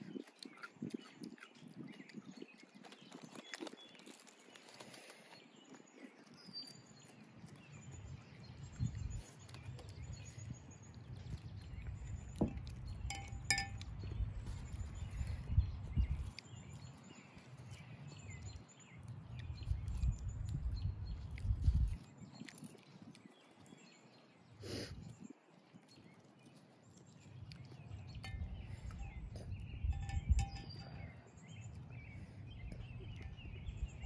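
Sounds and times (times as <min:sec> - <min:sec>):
wind buffeting microphone: 0:00.0 - 0:04.0, 0:07.4 - 0:24.0, 0:27.7 - 0:34.0
utensil clink: 0:13.1 - 0:13.9, 0:29.9 - 0:31.0.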